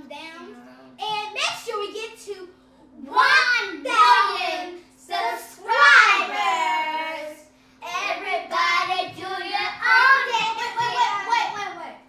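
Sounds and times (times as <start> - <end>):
young girls singing playfully: 3.1 - 12.0.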